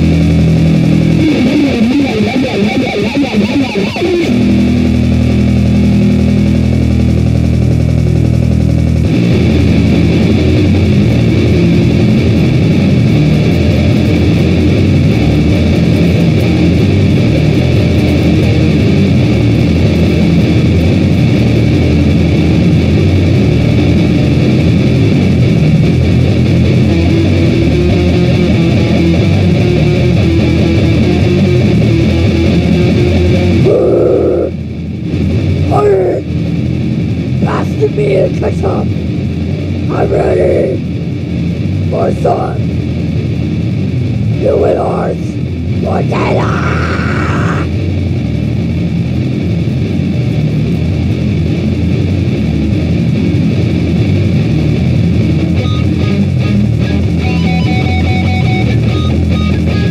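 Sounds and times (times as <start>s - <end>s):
band song led by guitar: 0.0s - 48.5s, 49.1s - 59.9s.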